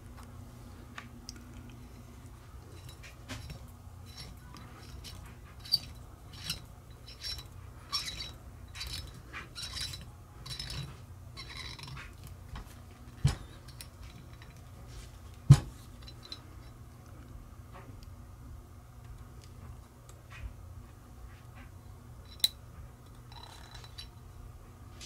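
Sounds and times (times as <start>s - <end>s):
metallic clinks and scrapes: 1.8s - 15.2s, 15.8s - 16.8s, 22.2s - 24.3s.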